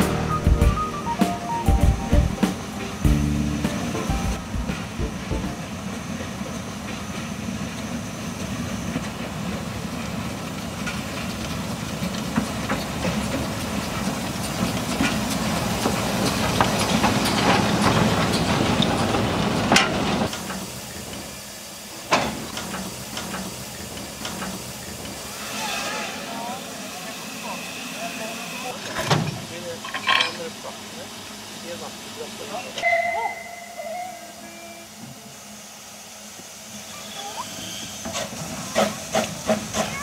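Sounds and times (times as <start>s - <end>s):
steam hissing: 2.4s - 29.7s, 30.5s - 40.0s
train wheels clicking on rails: 2.5s - 25.4s, 37.6s - 40.0s.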